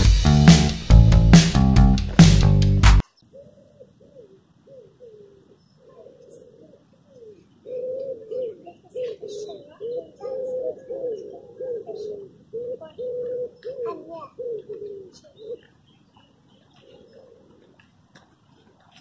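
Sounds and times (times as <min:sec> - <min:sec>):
small birds chirping: 0:03.0 - 0:19.0
pigeon cooing: 0:03.1 - 0:18.0.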